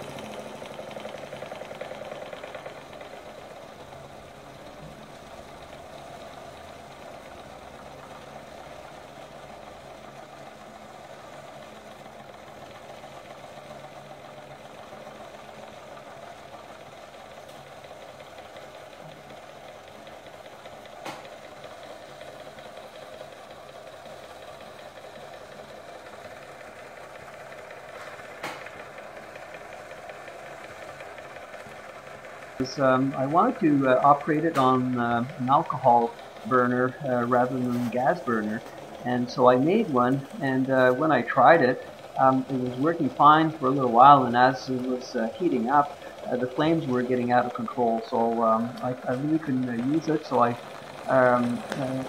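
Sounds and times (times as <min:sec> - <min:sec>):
steam engine chuffing: 0:00.0 - 0:52.0.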